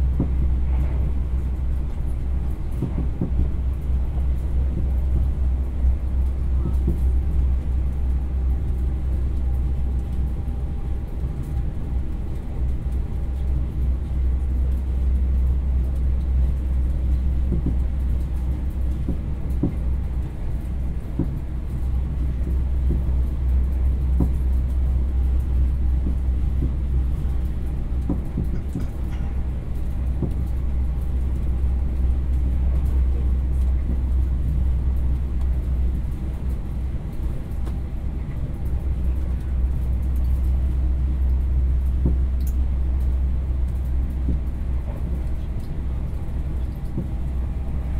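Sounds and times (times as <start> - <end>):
train running rumble: 0.0 - 47.9
light knocks and rattles: 1.8 - 5.8, 17.1 - 24.8, 25.4 - 31.5, 41.8 - 42.3, 43.6 - 45.9, 46.6 - 47.4.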